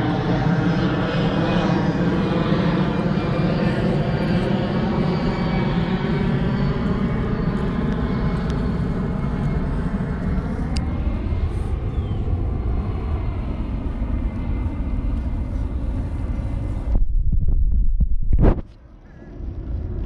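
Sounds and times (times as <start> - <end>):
engine drone: 0.0 - 20.0
low rumble: 9.6 - 20.0.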